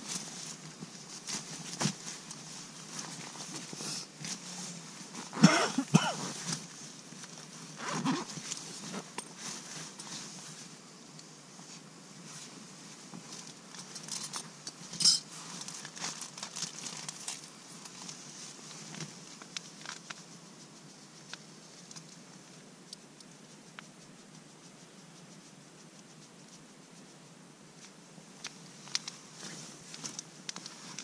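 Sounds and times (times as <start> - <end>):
steel cup clinking: 15.0 - 15.3
plastic and paper packets rustling: 15.4 - 18.2.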